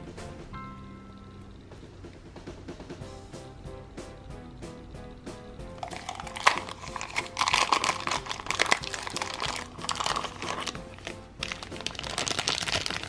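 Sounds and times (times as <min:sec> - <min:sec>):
background music: 0:00.0 - 0:13.0
plastic wrapper crinkling: 0:05.8 - 0:13.0.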